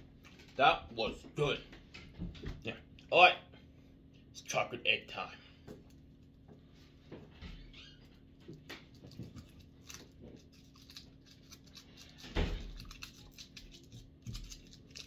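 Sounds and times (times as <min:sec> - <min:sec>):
foil wrapper crinkling: 0:08.8 - 0:15.0.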